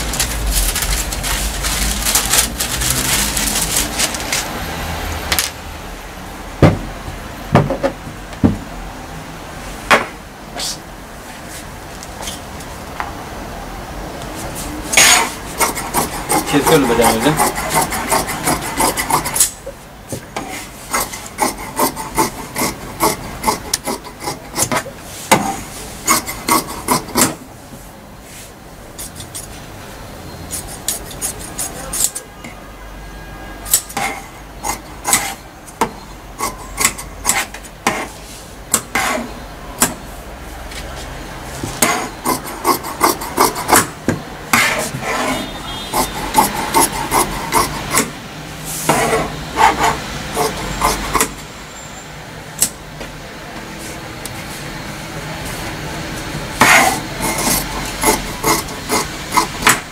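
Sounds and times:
shears snipping fabric: 56.6 - 59.9.

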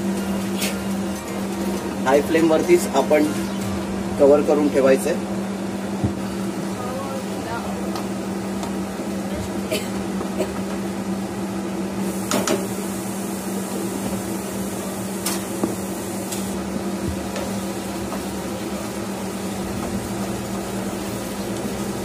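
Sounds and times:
steady hum: 0.0 - 22.0
chicken sizzling in wok: 12.0 - 22.0.

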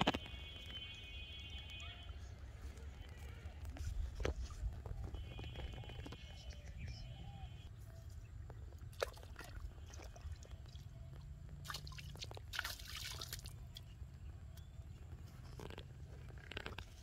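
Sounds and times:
water splashing: 11.6 - 13.9.

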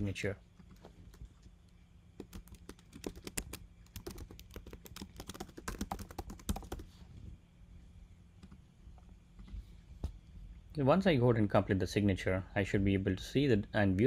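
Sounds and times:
computer keyboard typing: 2.2 - 6.9.

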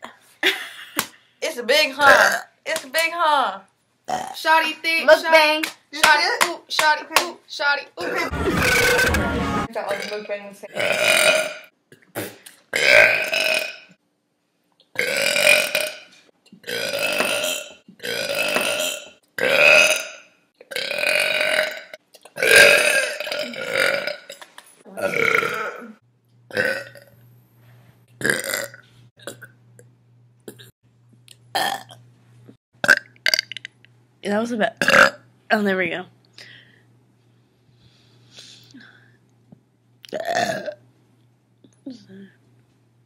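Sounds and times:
women belching: 9.9 - 11.7, 12.8 - 13.8, 16.6 - 24.3, 24.9 - 27.1, 40.1 - 40.8.

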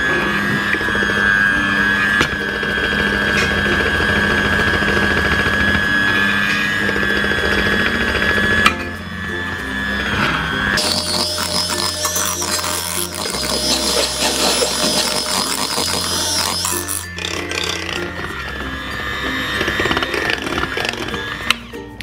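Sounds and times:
electric hand mixer whisking batter: 0.0 - 21.8
background music: 0.0 - 22.0.

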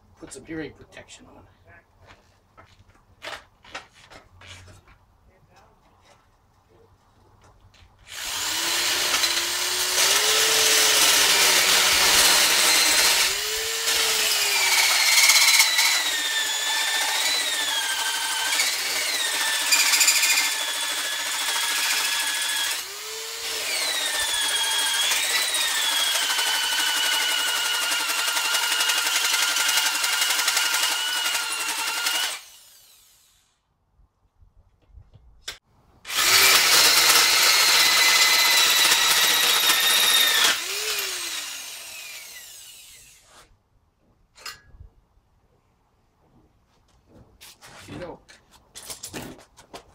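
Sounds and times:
electric drill motor running: 8.1 - 33.5, 36.1 - 43.2.

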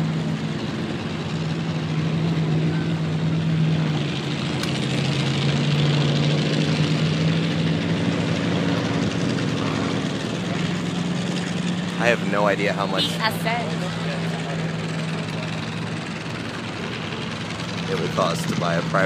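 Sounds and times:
propeller airplane engine droning: 0.0 - 19.0.

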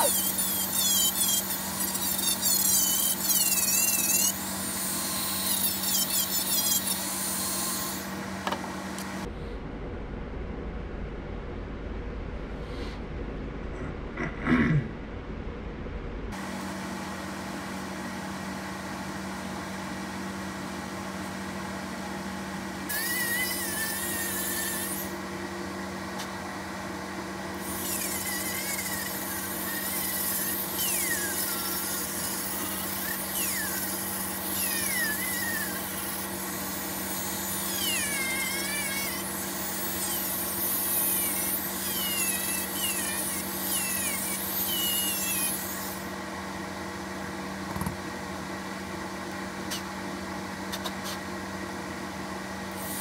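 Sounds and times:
rotary tool whining: 0.0 - 9.1, 22.9 - 25.2, 27.5 - 46.2.

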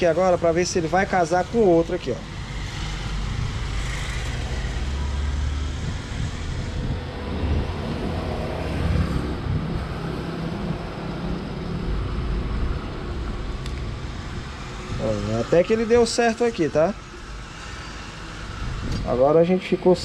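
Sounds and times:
low motor rumble: 3.0 - 16.8.

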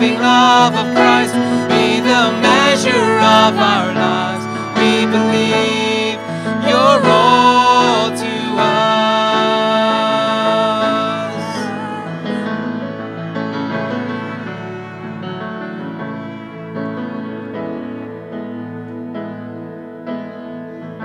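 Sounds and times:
man and woman singing: 0.0 - 12.6
grand piano: 0.0 - 21.0
violin: 0.0 - 21.0.

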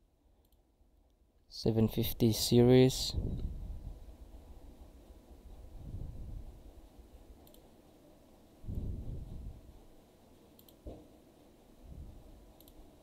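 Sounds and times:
computer mouse clicking: 0.4 - 1.2, 7.4 - 7.7, 10.5 - 11.1, 12.6 - 12.9
soft low microphone rumble: 3.0 - 7.4, 8.6 - 10.0, 11.8 - 12.6.

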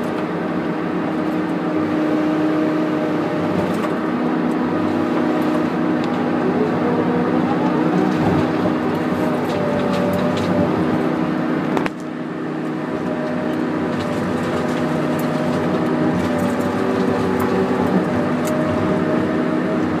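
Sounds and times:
diesel engine and hydraulics running: 0.0 - 20.0.

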